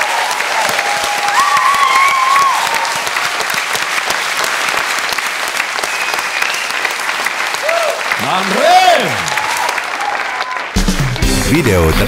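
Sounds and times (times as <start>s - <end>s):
person cheering: 0.0s - 3.1s, 7.6s - 10.7s
audience applauding: 0.0s - 12.0s.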